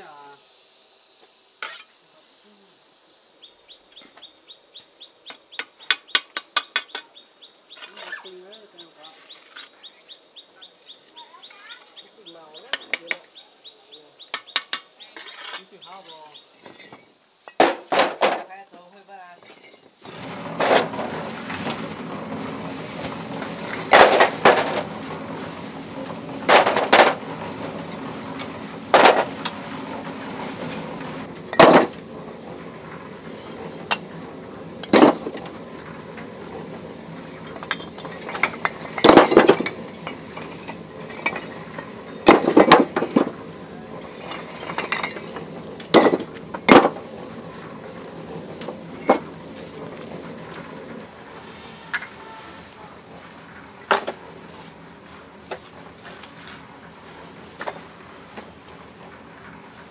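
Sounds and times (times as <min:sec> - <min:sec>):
steady low hiss: 0:00.0 - 0:59.9
hard objects clinking: 0:19.4 - 0:51.0.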